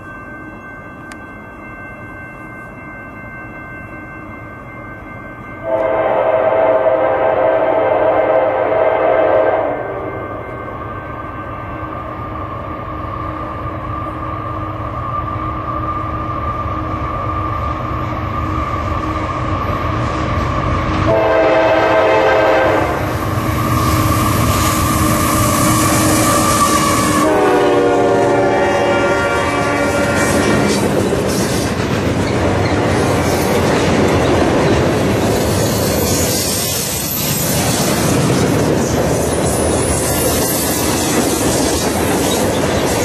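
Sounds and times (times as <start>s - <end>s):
diesel locomotive rumble and whine: 0.0s - 43.0s
locomotive air horn: 5.6s - 10.2s, 21.1s - 24.1s, 24.7s - 30.8s
train wheels clattering on rail joints: 29.8s - 43.0s.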